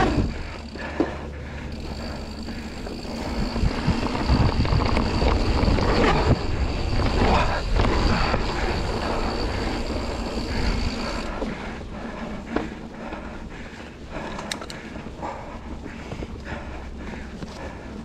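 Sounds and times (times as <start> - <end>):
bike rattling over bumps: 0.0 - 18.0
steady high whine: 0.0 - 18.0
wind buffeting microphone: 1.7 - 18.0.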